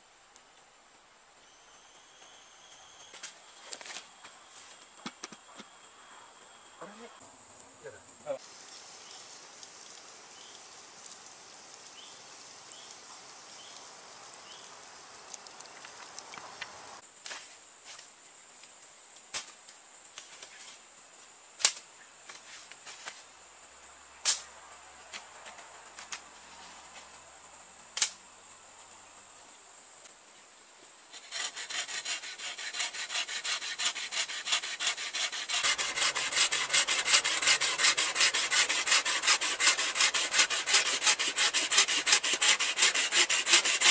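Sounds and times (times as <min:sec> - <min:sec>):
high insect drone: 0:01.4 - 0:17.1, 0:26.5 - 0:43.9
wooden pole rubbed with abrasive: 0:31.1 - 0:43.9.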